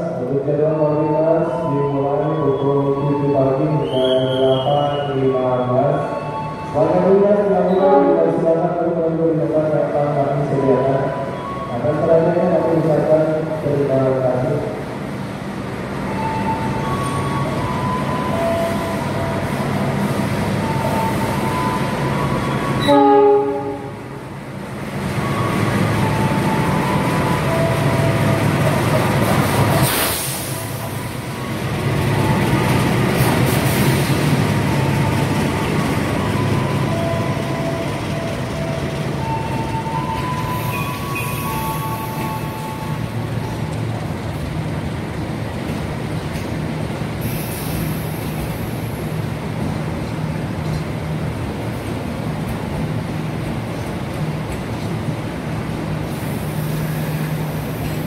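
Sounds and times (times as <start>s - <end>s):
train coaches rolling past: 0.0s - 58.0s
train horn blast: 22.8s - 24.1s.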